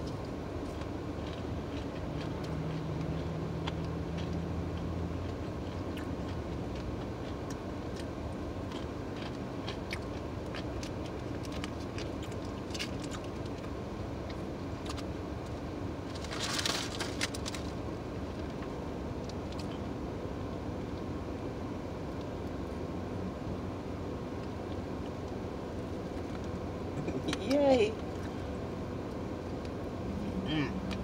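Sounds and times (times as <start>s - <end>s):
wet chewing and lip smacks: 0.0s - 15.6s
low hum inside a car: 0.0s - 31.0s
paper food packet crinkling: 16.0s - 17.8s.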